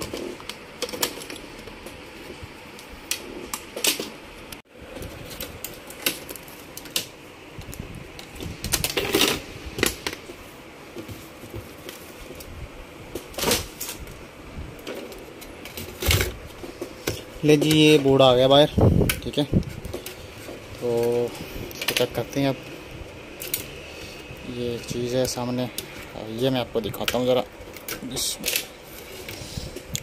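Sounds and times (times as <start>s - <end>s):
laptop parts clicking and knocking: 0.0s - 4.2s.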